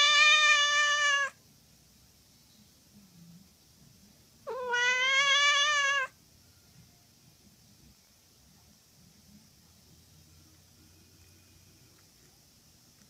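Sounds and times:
cat meowing: 0.0 - 1.4, 4.4 - 6.2.

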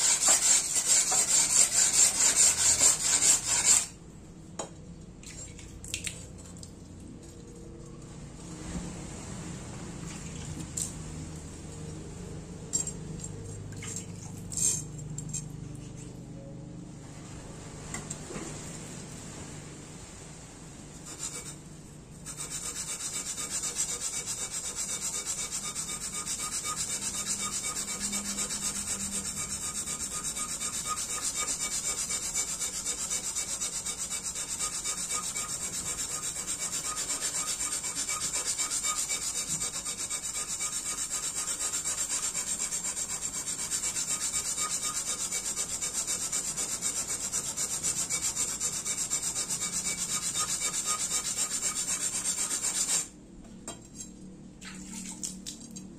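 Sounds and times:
blade scraping on whetstone: 0.0 - 3.9, 21.0 - 21.6, 22.2 - 53.1.

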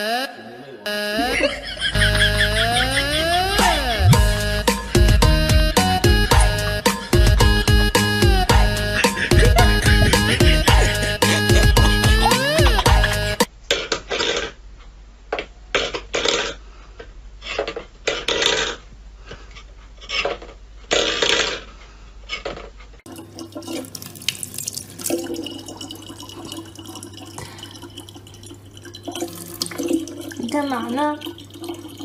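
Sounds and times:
water running into plastic bottle: 23.1 - 32.0.

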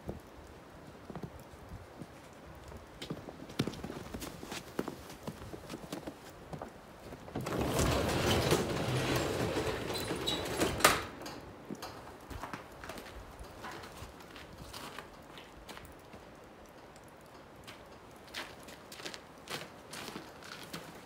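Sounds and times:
footsteps: 3.0 - 16.3
garage door rattling up tracks: 7.3 - 12.2
garage door banging: 7.4 - 12.0.

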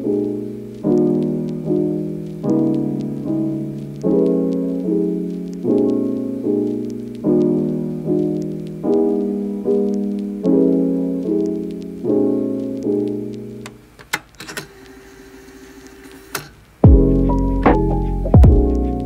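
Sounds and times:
soft piano chords: 0.0 - 13.8, 16.8 - 19.0.

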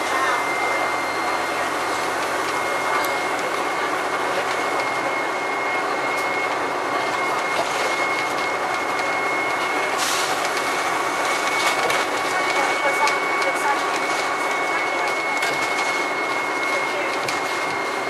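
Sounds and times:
bus engine running: 0.0 - 18.0
steady high whine: 0.0 - 18.0.

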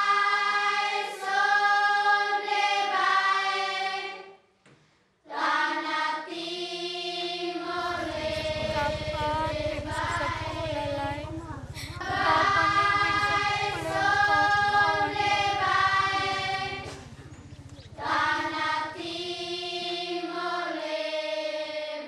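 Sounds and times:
low pulsing accompaniment: 7.7 - 19.8.

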